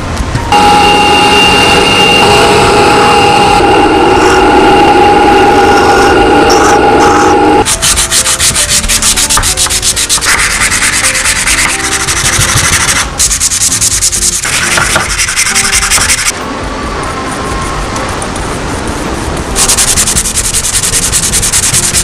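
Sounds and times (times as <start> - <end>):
wood scraping on sandpaper: 7.6 - 16.3, 18.0 - 22.0.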